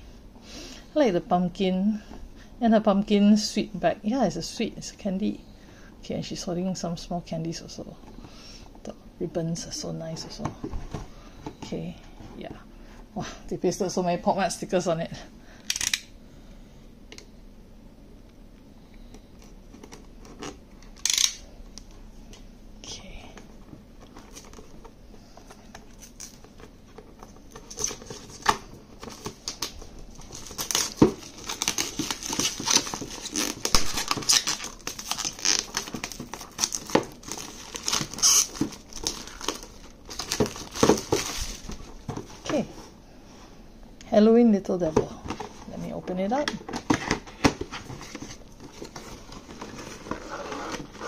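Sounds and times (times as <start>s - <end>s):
plastic film crinkling: 25.9s - 42.6s.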